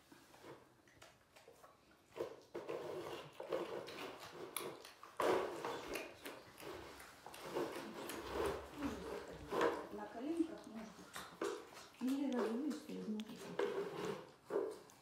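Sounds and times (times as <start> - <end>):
cubs growling: 5.4 - 14.3.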